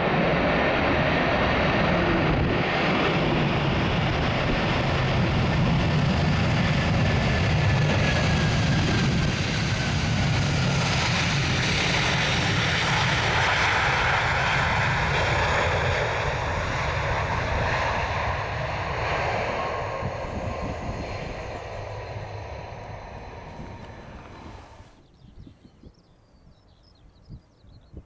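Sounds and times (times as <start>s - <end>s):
jet engines roaring: 0.0s - 25.2s.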